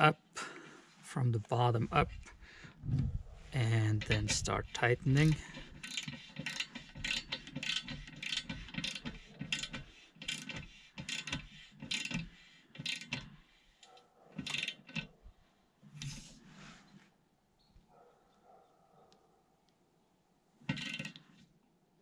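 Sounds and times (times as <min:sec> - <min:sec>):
ratchet wrench clicking: 0:05.1 - 0:13.4, 0:14.4 - 0:15.1, 0:20.7 - 0:21.2.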